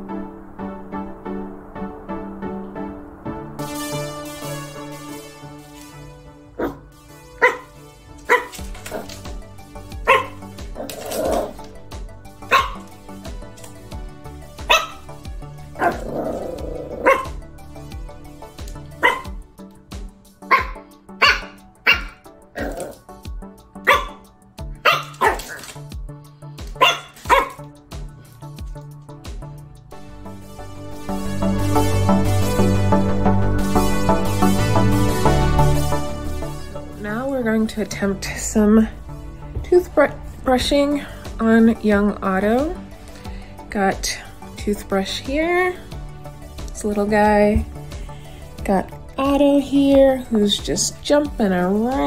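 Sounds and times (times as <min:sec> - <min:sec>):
background music: 0:00.0 - 0:52.0
puppy barking: 0:06.6 - 0:09.3, 0:10.0 - 0:11.7, 0:12.4 - 0:12.9, 0:14.6 - 0:15.1, 0:15.8 - 0:17.4, 0:19.0 - 0:19.4, 0:20.4 - 0:23.0, 0:23.8 - 0:25.8, 0:26.7 - 0:27.7.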